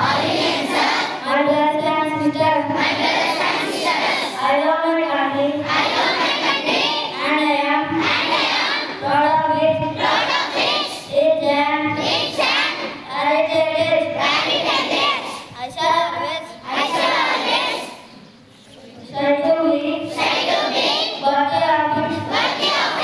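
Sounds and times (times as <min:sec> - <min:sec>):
children singing along: 0:00.0 - 0:18.2, 0:19.1 - 0:23.0
boy singing into microphone: 0:01.0 - 0:03.0, 0:04.3 - 0:06.1, 0:07.0 - 0:08.2, 0:08.8 - 0:14.6, 0:19.0 - 0:20.2, 0:21.1 - 0:23.0.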